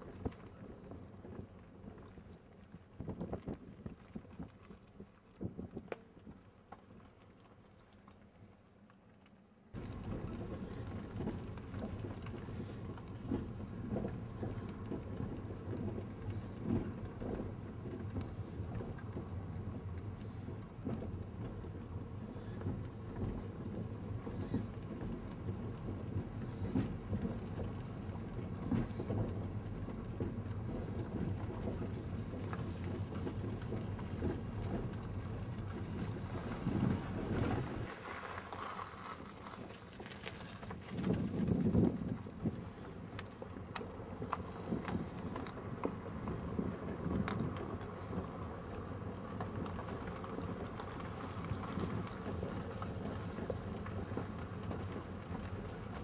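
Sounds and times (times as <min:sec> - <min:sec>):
car road noise rumble: 0:00.0 - 0:56.0
wind buffeting microphone: 0:09.8 - 0:38.0, 0:40.0 - 0:56.0.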